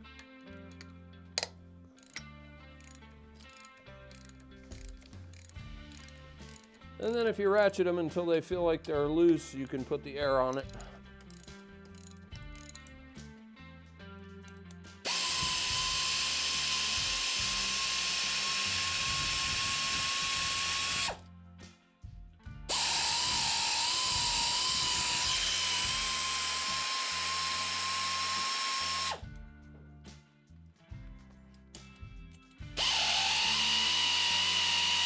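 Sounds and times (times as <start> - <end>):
pneumatic air ratchet whining: 2.0 - 6.8, 10.6 - 12.9, 15.0 - 21.2, 22.7 - 29.3, 32.8 - 35.0.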